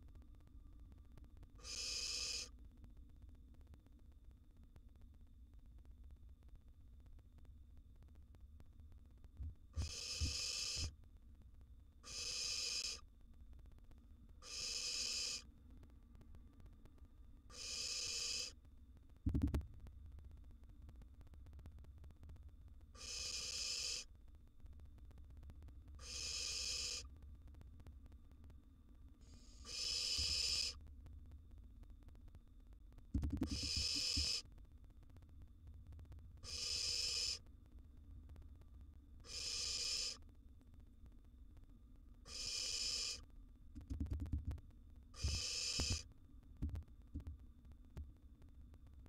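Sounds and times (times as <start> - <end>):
owl nestling hissing: 1.6 - 2.5, 9.8 - 10.9, 12.0 - 13.0, 14.4 - 15.5, 17.5 - 18.6, 23.0 - 24.1, 26.0 - 27.1, 29.3 - 30.8, 33.4 - 34.4, 36.4 - 37.4, 39.2 - 40.2, 42.3 - 43.2, 45.2 - 46.0.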